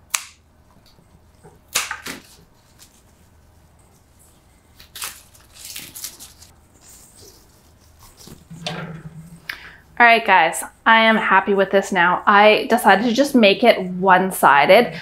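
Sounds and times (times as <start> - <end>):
flower stems rustling: 4.8 - 8.6.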